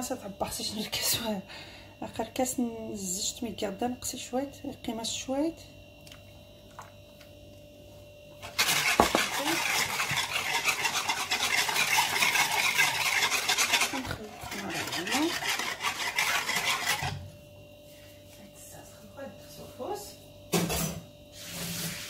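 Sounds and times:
whisk clattering in wooden bowl: 0:08.6 - 0:17.1.

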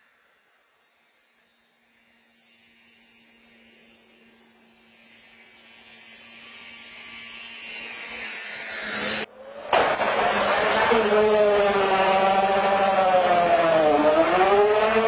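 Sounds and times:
snowmobile engine at full throttle: 0:08.9 - 0:15.0.

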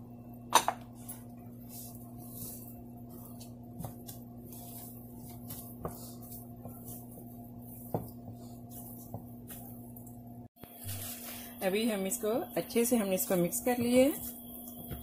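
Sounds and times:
steady low hum: 0:00.0 - 0:15.0
hand kneading dough: 0:01.0 - 0:10.1.

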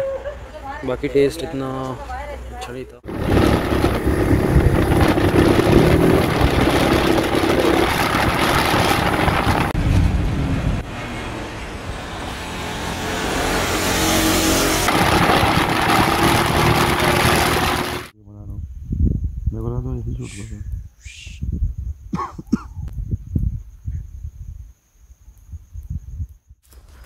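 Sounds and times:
motorcycle engine running: 0:03.0 - 0:09.8, 0:14.7 - 0:18.1
wind rush on microphone: 0:03.0 - 0:10.9, 0:14.8 - 0:27.0.

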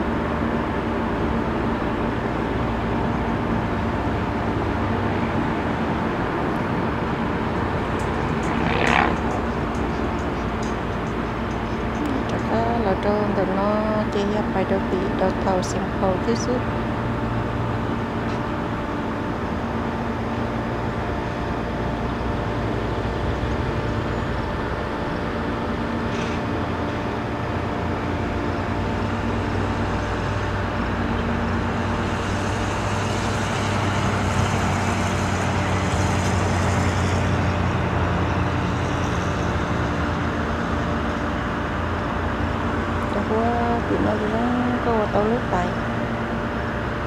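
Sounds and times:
diesel engines and traffic drone: 0:00.0 - 0:47.0
vehicle passing with tyre hiss: 0:04.1 - 0:12.0, 0:29.4 - 0:42.8.

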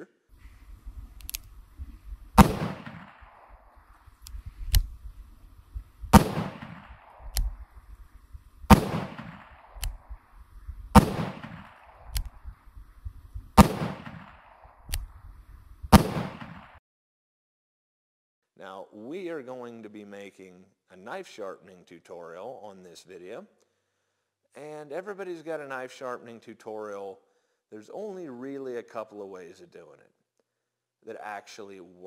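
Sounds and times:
revolver gunshots: 0:00.4 - 0:15.2, 0:15.9 - 0:16.8.

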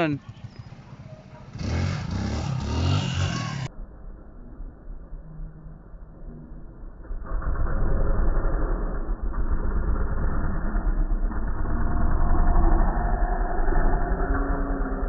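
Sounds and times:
dirt bike engine revving: 0:00.0 - 0:03.7.

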